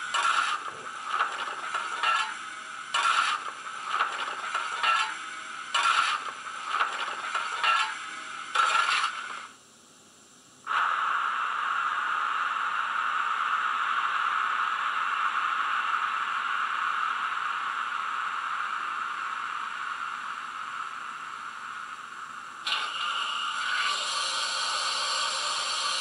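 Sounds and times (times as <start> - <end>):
steam hiss from small speaker: 10.6 - 26.0.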